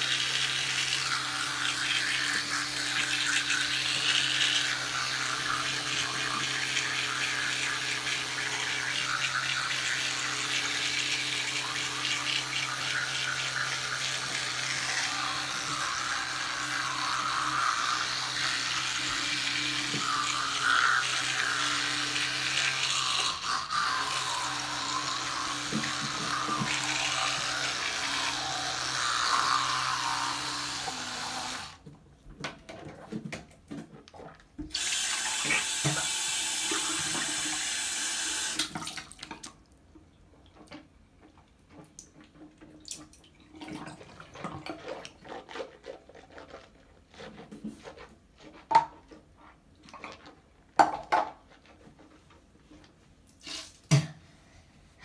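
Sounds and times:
electric toothbrush humming: 0.0s - 31.8s, 34.7s - 38.6s.

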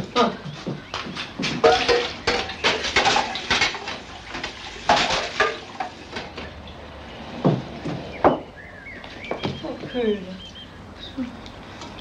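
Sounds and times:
metal saucepan clattering in sink: 1.6s - 6.4s.

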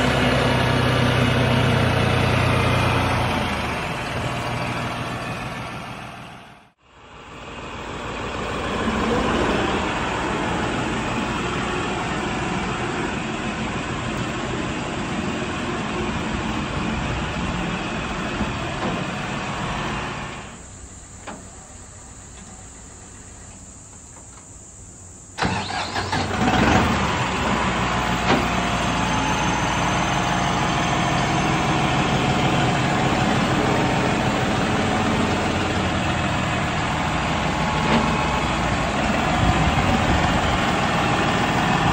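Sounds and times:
diesel tractor engine running: 0.0s - 24.3s, 25.0s - 41.9s.

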